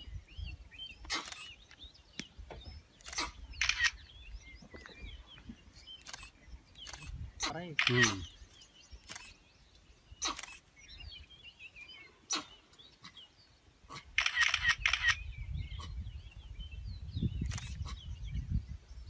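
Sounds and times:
small birds chirping: 0:00.0 - 0:19.0
camera shutters clicking: 0:01.1 - 0:01.6, 0:03.0 - 0:04.0, 0:06.0 - 0:07.2, 0:07.8 - 0:08.3, 0:09.0 - 0:09.4, 0:14.2 - 0:15.2, 0:17.4 - 0:17.8.

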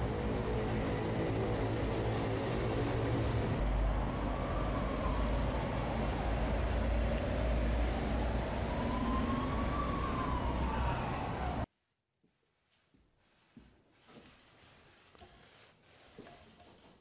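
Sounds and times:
emergency siren wailing: 0:02.6 - 0:11.7.

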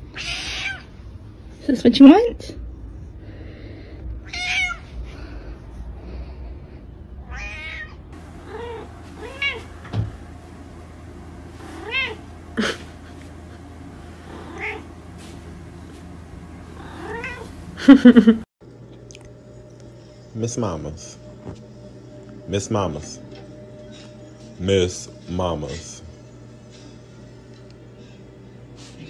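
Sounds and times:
cat meowing: 0:00.1 - 0:00.9, 0:04.2 - 0:04.9, 0:07.2 - 0:09.7, 0:11.8 - 0:12.2, 0:14.4 - 0:14.8, 0:16.8 - 0:17.5
cat yowling: 0:00.1 - 0:00.9, 0:04.2 - 0:04.8, 0:07.2 - 0:09.7, 0:11.8 - 0:12.2, 0:14.3 - 0:14.8, 0:16.8 - 0:17.5.

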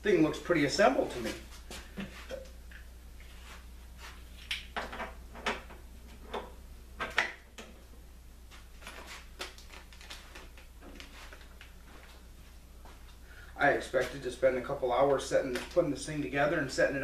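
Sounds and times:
packing rustling: 0:08.8 - 0:11.6.

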